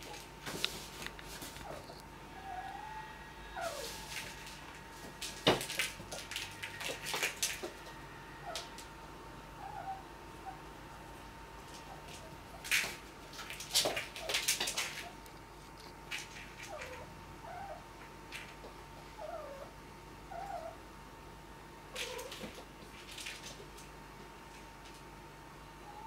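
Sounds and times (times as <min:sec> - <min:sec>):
cat chirping trills: 0:09.6 - 0:10.7.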